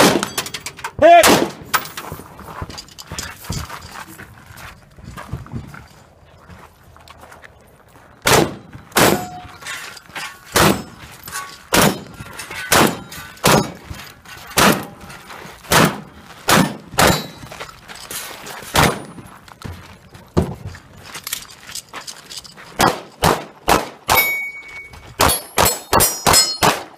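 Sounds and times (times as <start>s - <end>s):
rifle shots: 0.0s - 0.4s, 1.2s - 1.8s, 8.2s - 9.4s, 10.5s - 11.0s, 11.7s - 12.1s, 12.7s - 13.8s, 14.6s - 15.0s, 15.7s - 17.4s, 18.7s - 19.1s, 22.8s - 24.3s, 25.2s - 26.9s.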